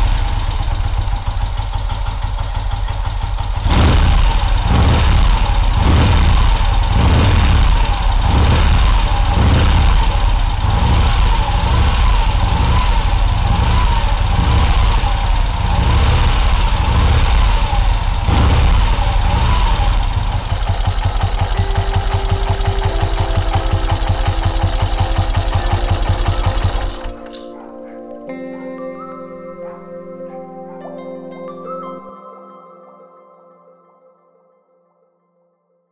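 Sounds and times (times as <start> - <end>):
motorcycle engine running: 0.0 - 27.4
background music: 21.1 - 34.2.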